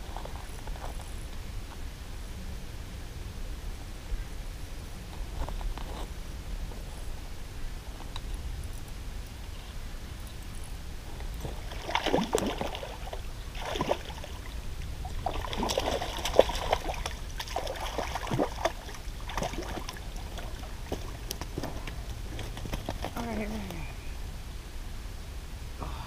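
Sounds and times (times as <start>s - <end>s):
fish splashing at water surface: 11.4s - 23.1s.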